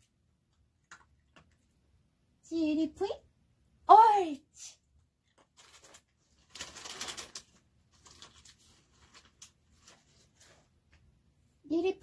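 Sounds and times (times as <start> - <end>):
faint rustling and crackling: 5.2 - 11.2.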